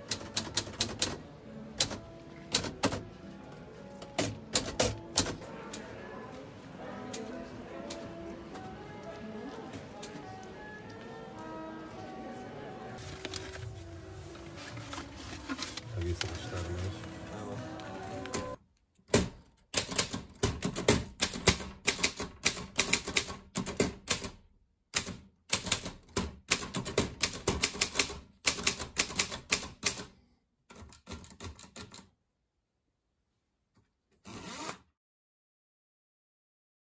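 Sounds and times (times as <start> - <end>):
typewriter keys clicking: 0.0 - 1.2, 1.8 - 3.0, 4.0 - 5.4, 19.2 - 24.4, 25.0 - 30.1, 30.7 - 32.1.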